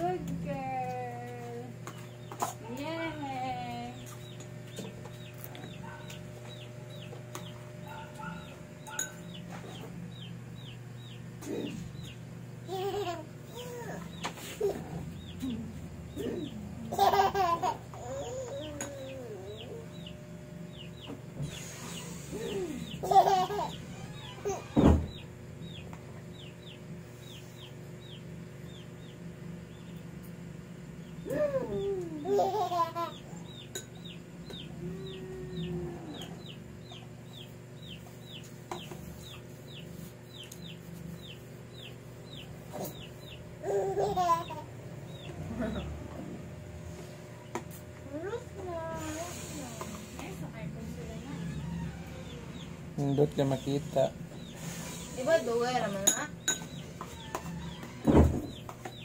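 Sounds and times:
small bird peeping: 4.0s - 12.3s, 18.0s - 30.1s, 32.7s - 45.9s, 52.1s - 55.8s
toddler laughing and babbling: 12.7s - 15.0s, 16.2s - 19.9s, 22.4s - 23.8s, 31.3s - 33.2s, 43.6s - 44.7s
toddler's voice: 18.0s - 19.8s.

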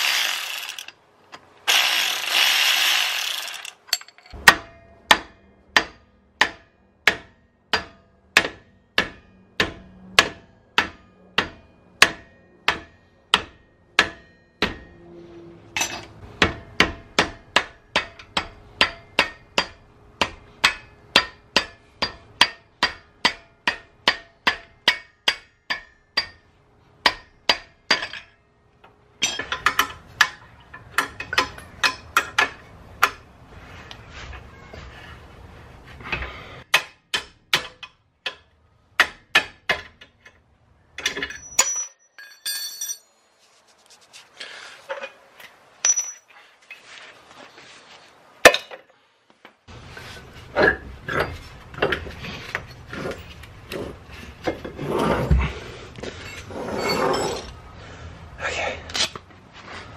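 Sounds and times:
hand ratchet spinning: 0.0s - 1.0s, 1.7s - 4.0s.

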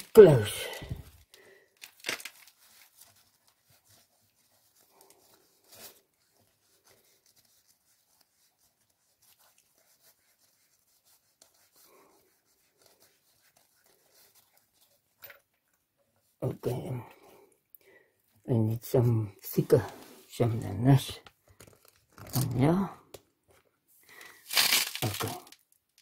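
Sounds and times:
rag rustling: 0.0s - 17.0s, 24.1s - 25.5s.

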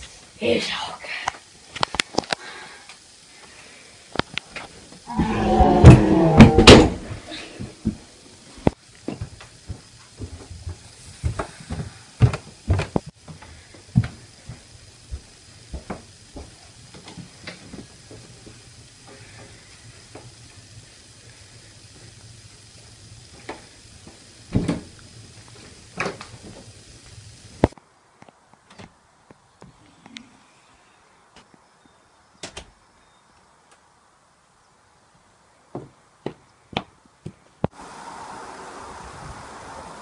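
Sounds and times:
low hum and hiss: 0.0s - 40.0s
knocks and bumps of people moving: 5.7s - 8.1s, 9.0s - 16.6s.

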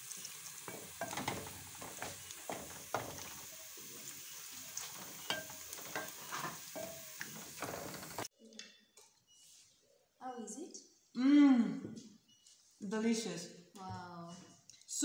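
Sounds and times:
stew sizzling: 0.0s - 8.3s
spoon scraping metal pot: 5.0s - 8.3s.

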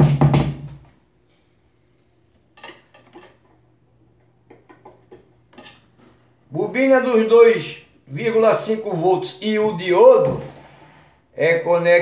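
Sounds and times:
knock: 0.0s - 0.8s.

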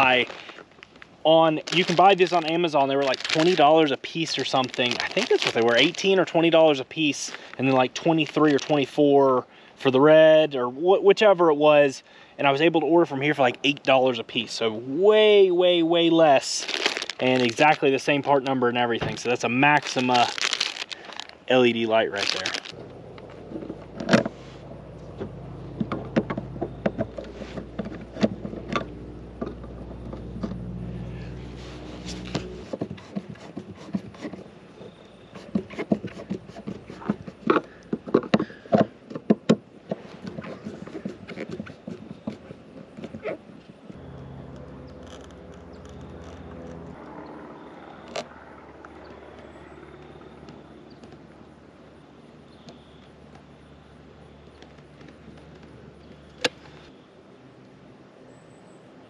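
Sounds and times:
low steady hum: 12.1s - 38.7s, 41.7s - 59.0s.

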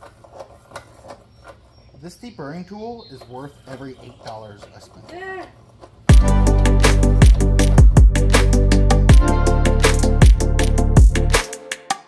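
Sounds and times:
electronic dance music: 6.1s - 12.0s.

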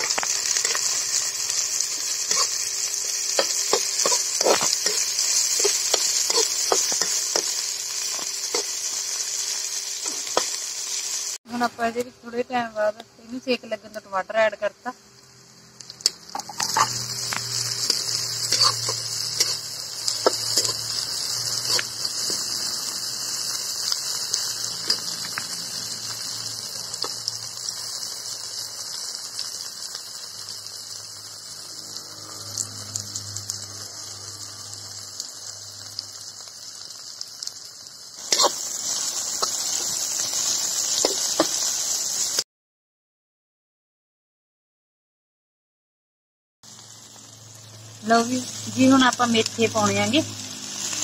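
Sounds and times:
metal spatula scraping pan: 0.0s - 9.0s, 16.4s - 22.8s, 38.2s - 39.9s
vegetables sizzling in hot oil: 0.0s - 42.4s, 46.6s - 51.0s.

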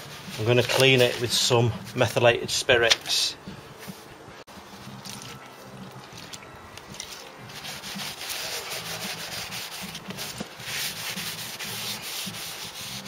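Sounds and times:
rag rubbing on metal disc: 7.5s - 13.0s.

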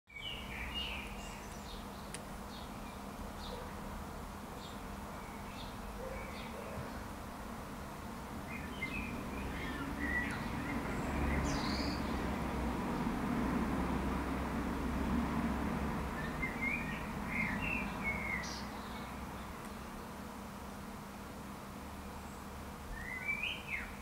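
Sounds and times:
small birds chirping: 0.1s - 3.9s, 4.5s - 7.2s, 8.2s - 13.1s, 16.1s - 20.3s, 22.0s - 24.0s.

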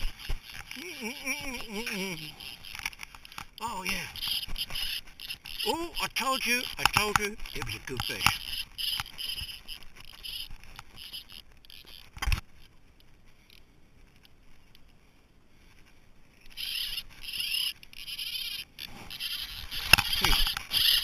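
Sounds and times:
fly reel ratchet buzzing: 4.2s - 6.0s, 7.6s - 12.1s, 16.5s - 21.0s.

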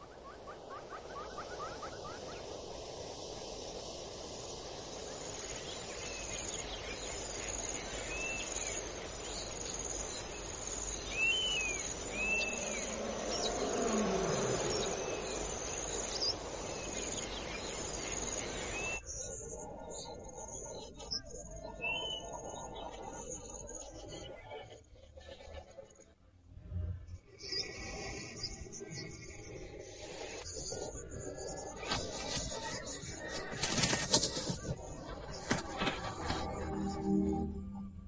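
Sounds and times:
insects chirring: 0.0s - 20.5s
bird chirps: 5.6s - 24.5s.

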